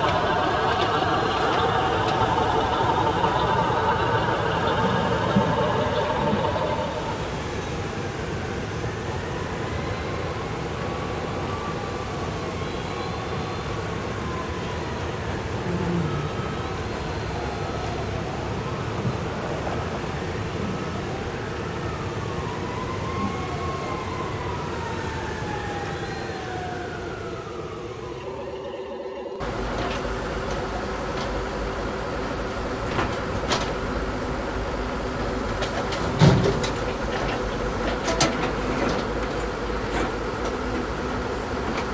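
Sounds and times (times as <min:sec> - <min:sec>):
steady hum: 0:00.0 - 0:08.7.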